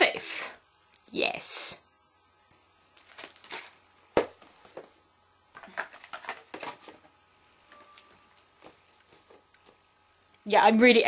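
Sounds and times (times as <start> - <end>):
cardboard packets rustling and tapping: 3.0 - 5.0, 5.6 - 7.2.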